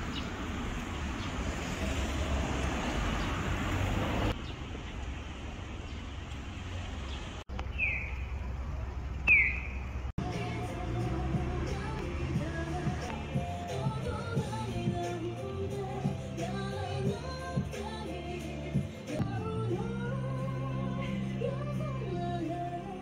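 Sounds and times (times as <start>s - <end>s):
low traffic rumble: 0.0s - 23.0s
music: 10.2s - 23.0s.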